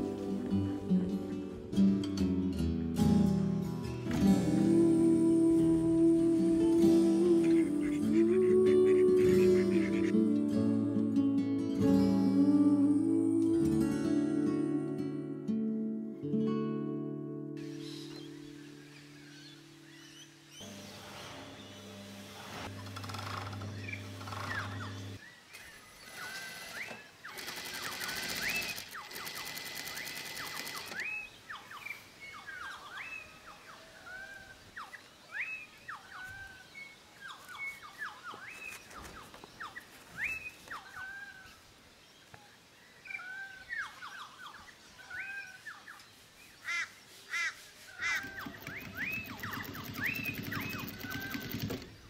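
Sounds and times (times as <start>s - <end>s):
sewing machine rattling: 27.4s - 31.0s, 48.2s - 52.0s
birds whistling calls: 30.0s - 41.6s, 43.0s - 51.8s.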